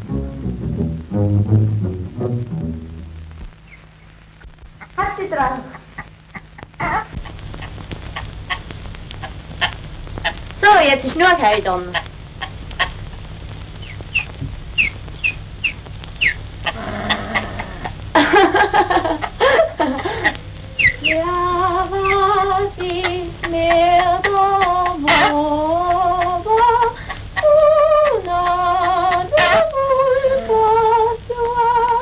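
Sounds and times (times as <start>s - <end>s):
woman singing slow melody: 21.0s - 32.0s.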